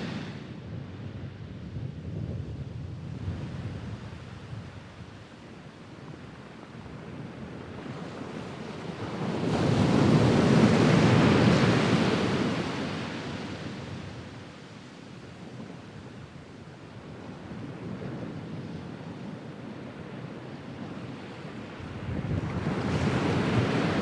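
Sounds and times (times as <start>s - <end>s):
sea waves washing on sand: 0.0s - 0.6s, 19.7s - 24.0s.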